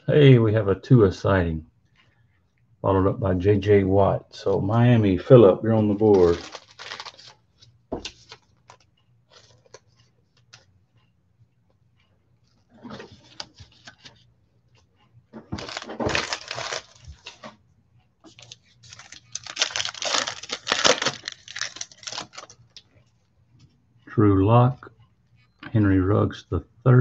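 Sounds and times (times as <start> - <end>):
card pack wrapper tearing: 6.0 - 7.4, 15.5 - 17.4, 18.4 - 22.6.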